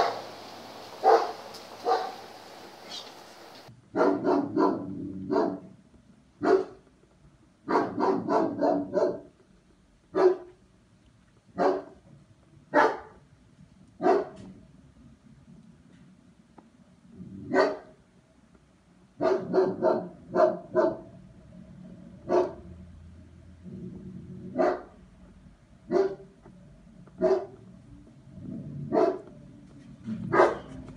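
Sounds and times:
dog barking: 0.0s - 5.7s, 6.4s - 6.8s, 7.7s - 9.3s, 10.1s - 10.6s, 11.6s - 12.0s, 12.7s - 13.2s, 14.0s - 14.5s, 17.5s - 18.0s, 19.2s - 21.2s, 22.2s - 22.7s, 24.5s - 25.0s, 25.9s - 26.3s, 27.2s - 27.6s, 28.9s - 29.3s, 30.3s - 30.8s.

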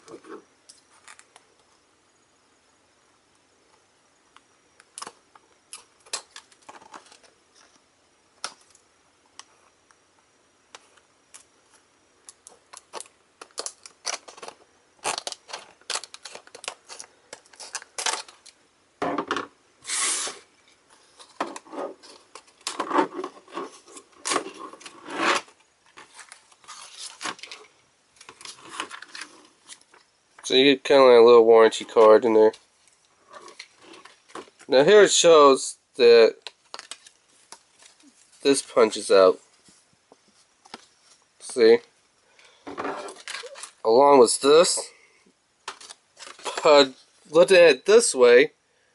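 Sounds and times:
plastic crinkling and scraping: 5.0s - 7.8s, 12.4s - 18.6s, 20.6s - 30.5s, 31.7s - 34.7s, 36.4s - 38.8s, 42.6s - 43.8s, 45.6s - 47.3s.

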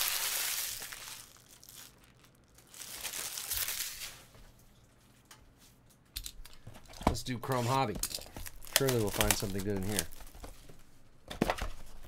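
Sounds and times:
wrappers crinkling: 0.0s - 4.3s, 7.4s - 10.5s.

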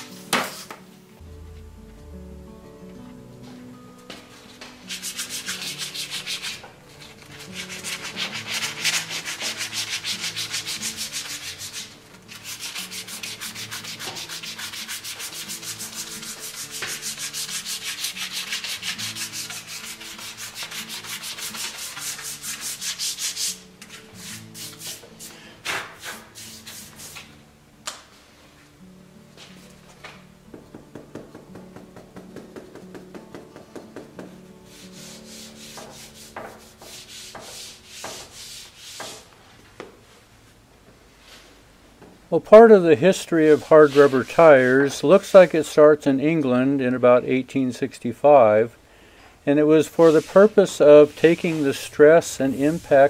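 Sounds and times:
sandpaper rubbing on rubber tire: 4.8s - 27.3s, 34.7s - 39.3s, 43.4s - 44.9s, 49.8s - 53.0s.

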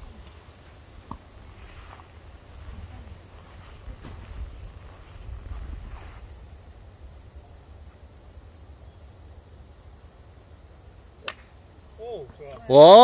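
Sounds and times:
crickets chirring: 0.0s - 13.0s
wind rumble on microphone: 2.6s - 6.2s
golf club striking ball: 11.2s - 11.5s.

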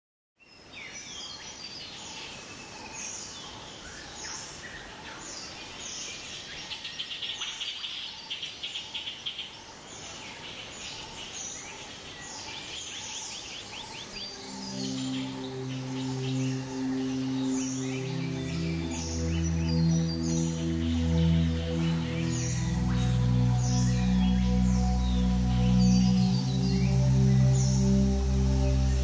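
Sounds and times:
steady hiss: 9.8s - 29.0s.

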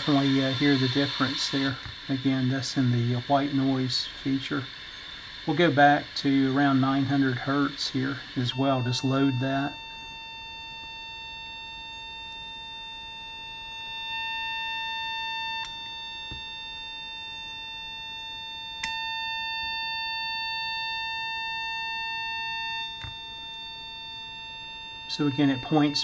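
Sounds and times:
steady test tone from speaker: 0.0s - 26.0s.

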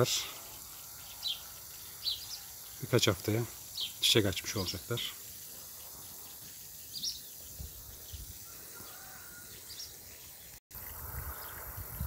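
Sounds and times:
steady background hiss: 0.0s - 9.4s.

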